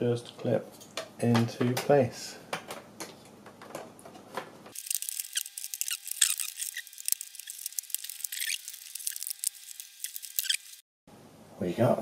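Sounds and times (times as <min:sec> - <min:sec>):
high-pitched clicks and chirps: 0:04.8 - 0:10.8.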